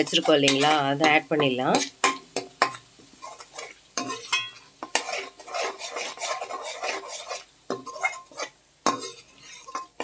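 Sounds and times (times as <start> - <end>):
metal spatula scraping pan: 0.0 - 10.0
paste sizzling in oil: 0.0 - 10.0.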